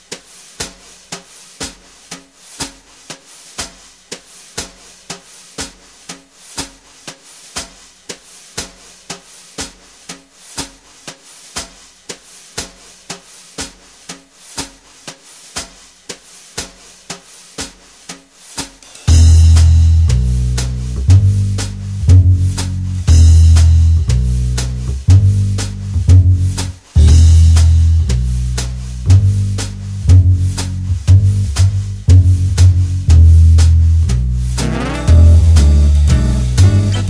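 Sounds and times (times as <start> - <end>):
drum beat: 0.0 - 37.0
low bass line: 19.1 - 37.0.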